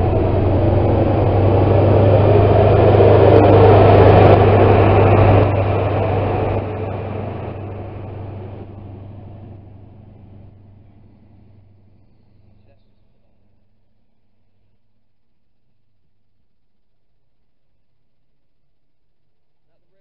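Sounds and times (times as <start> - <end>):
diesel train engine rumbling past: 0.0 - 13.9.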